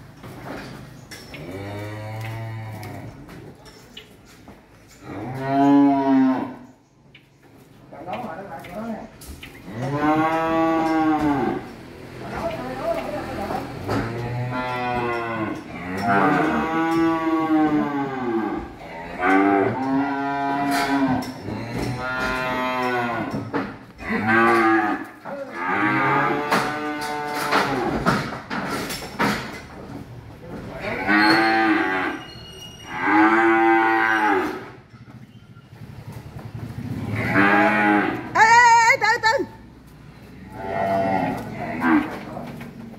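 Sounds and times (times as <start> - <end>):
cattle mooing: 1.4 - 3.2, 5.0 - 6.7, 9.6 - 11.8, 13.6 - 28.0, 30.8 - 34.8, 37.0 - 38.6, 40.4 - 42.4.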